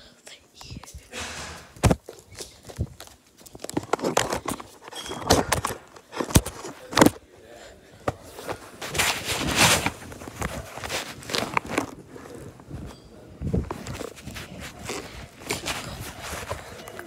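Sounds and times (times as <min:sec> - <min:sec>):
microphone rubbing on clothing: 0:08.2 - 0:17.0.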